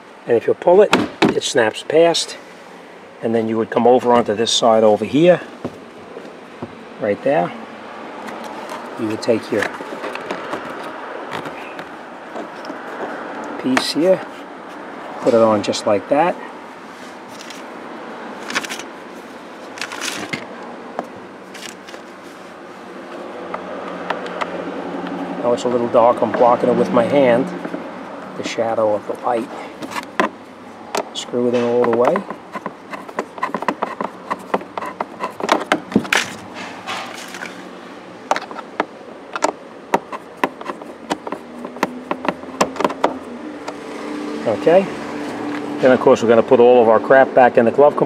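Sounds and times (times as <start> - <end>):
steady background hiss: 0.0 - 23.7
plastic parts clicking and scraping: 8.2 - 13.9, 17.3 - 17.7, 18.4 - 18.9, 19.6 - 22.1, 29.4 - 43.8.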